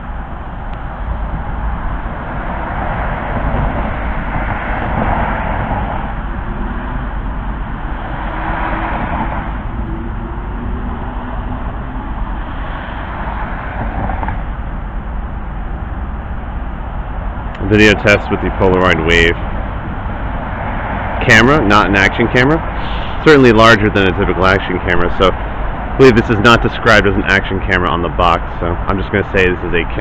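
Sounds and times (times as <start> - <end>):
low rumble: 0.0 - 26.0
tyres hissing on wet road: 22.6 - 24.7.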